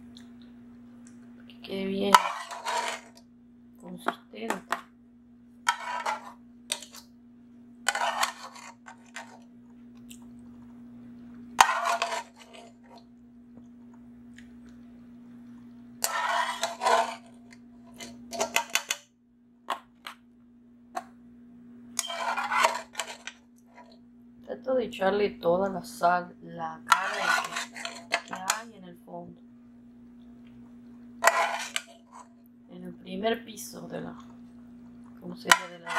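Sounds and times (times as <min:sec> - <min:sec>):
steady low hum: 0:00.0 - 0:35.9
utensil scraping foil pan: 0:02.1 - 0:03.2, 0:05.7 - 0:07.0, 0:07.9 - 0:09.4, 0:11.6 - 0:12.9, 0:16.0 - 0:19.0, 0:22.0 - 0:23.9, 0:26.9 - 0:28.7, 0:31.2 - 0:32.3, 0:35.5 - 0:35.9.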